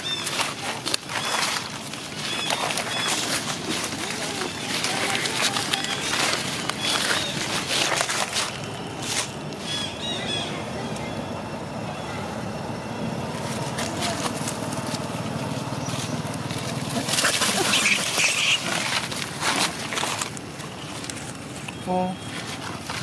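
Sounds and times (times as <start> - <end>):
monkeys squealing and screeching: 0.0 - 8.6, 9.6 - 12.4, 15.8 - 20.3
scuffling on dry leaves: 0.0 - 11.2, 12.6 - 23.0.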